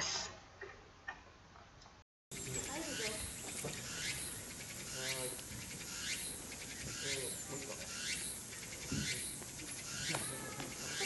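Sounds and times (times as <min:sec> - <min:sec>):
cicadas singing: 0:02.3 - 0:11.0.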